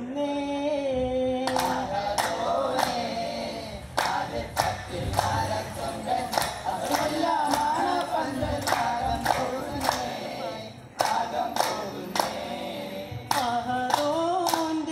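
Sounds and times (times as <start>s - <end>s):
men singing in chorus: 0.0s - 14.9s
sharp hand claps: 1.5s - 3.1s, 4.0s - 5.6s, 6.3s - 10.2s, 11.0s - 12.4s, 13.3s - 14.9s.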